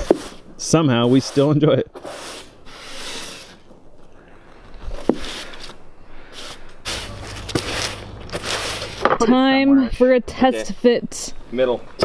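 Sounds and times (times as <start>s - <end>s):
broom sweeping sawdust off wood: 0.0s - 3.6s, 6.3s - 9.1s.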